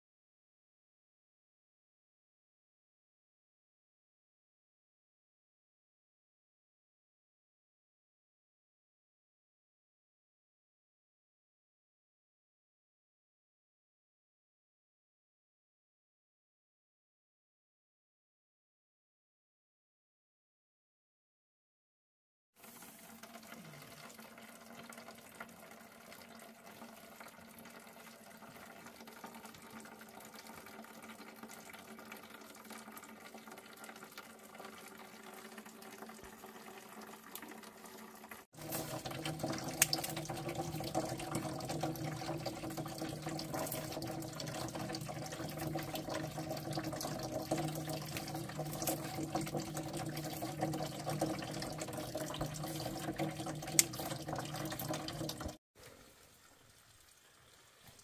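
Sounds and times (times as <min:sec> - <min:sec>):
stream water running: 0:22.6 - 0:58.0.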